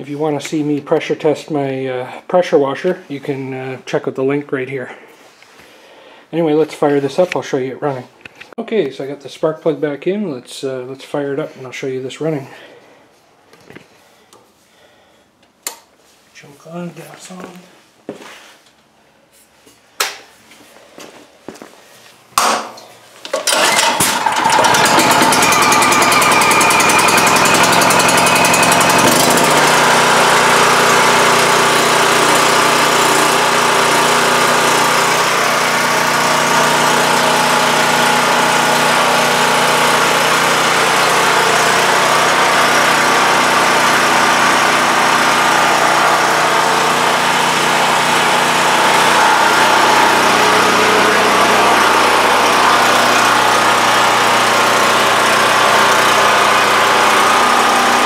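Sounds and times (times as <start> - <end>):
generator engine running: 23.4 - 58.0.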